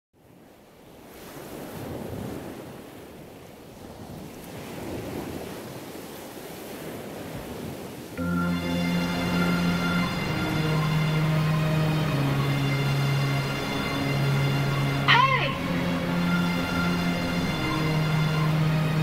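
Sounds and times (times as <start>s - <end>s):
ocean waves washing in: 0.2s - 19.0s
music: 8.2s - 19.0s.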